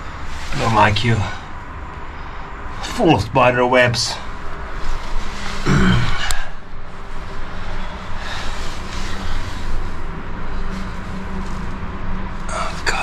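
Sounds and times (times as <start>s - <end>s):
steady low rumble: 0.0s - 13.0s
clothing rustling: 4.3s - 5.7s, 6.8s - 12.5s.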